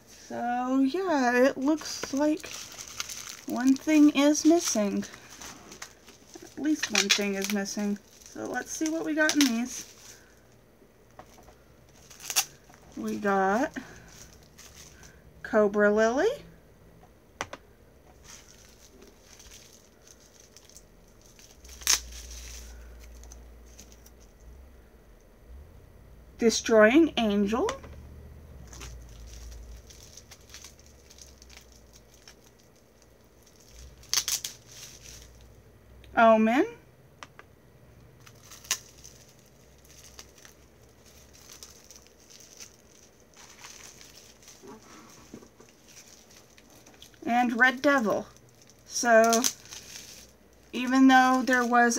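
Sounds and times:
wrapping crinkling and rustling: 0.0s - 15.3s, 18.1s - 24.5s, 28.6s - 35.6s, 38.2s - 51.9s
sharp crackle of wrapping: 1.0s - 15.2s, 18.2s - 24.4s, 28.6s - 35.6s, 38.2s - 51.9s.

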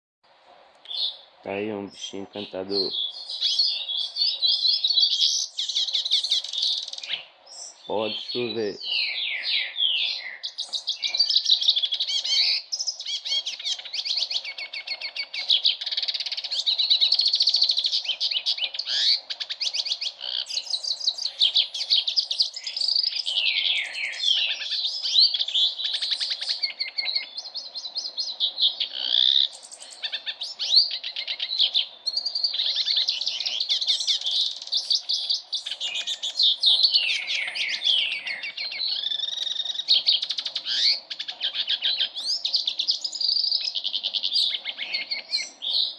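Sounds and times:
bird twittering song: 0.8s - 45.9s.

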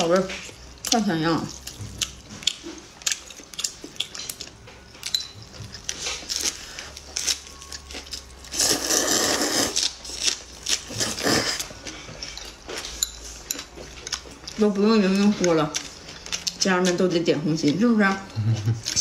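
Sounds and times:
wet chewing and mouth clicks: 0.0s - 19.0s
slurping noodles: 8.6s - 9.8s.

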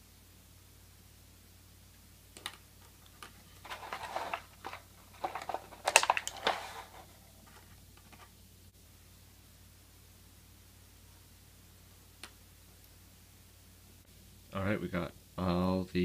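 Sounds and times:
plastic parts clicking: 2.4s - 8.3s
plastic tray crinkling: 2.4s - 8.3s.

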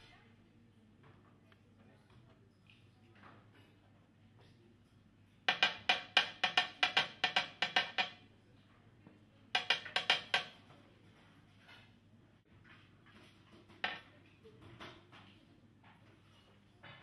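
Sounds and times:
metal cup tapping on worktop: 5.5s - 8.2s, 9.6s - 10.6s.

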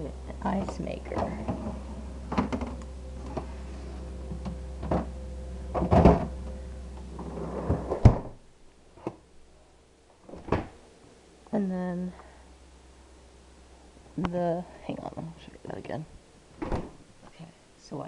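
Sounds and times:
steady low hum: 0.0s - 18.0s
freezer drawer thumping shut: 5.8s - 6.4s, 7.7s - 8.4s.

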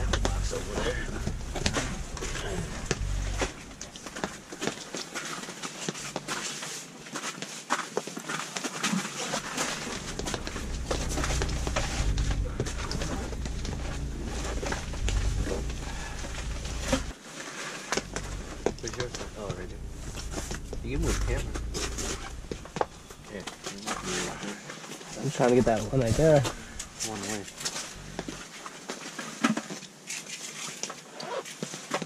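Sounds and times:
low rumble: 0.0s - 5.0s, 9.3s - 17.2s, 18.0s - 24.5s, 25.1s - 28.4s
rustling: 0.0s - 32.0s.

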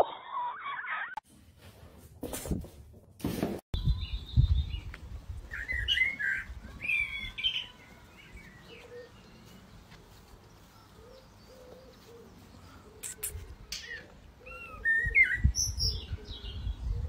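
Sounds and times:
small birds chirping: 3.8s - 17.0s.

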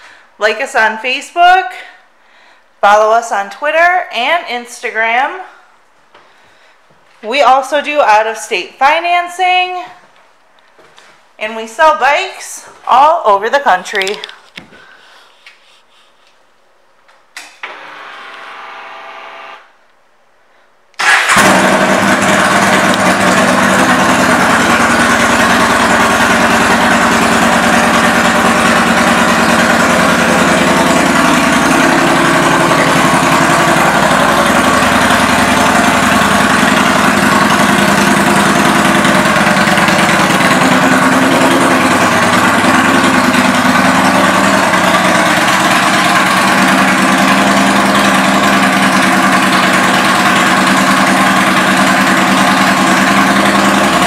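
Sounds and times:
motorcycle engine idling: 21.4s - 54.0s.

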